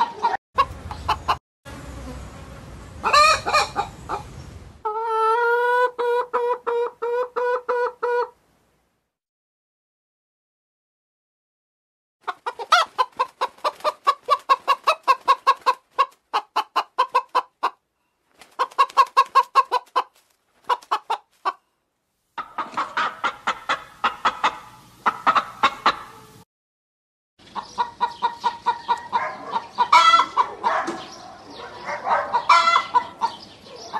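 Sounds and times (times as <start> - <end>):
hens clucking: 0.0 - 1.4, 3.0 - 8.4, 12.2 - 17.8, 18.4 - 21.6, 22.4 - 26.3, 27.4 - 33.9.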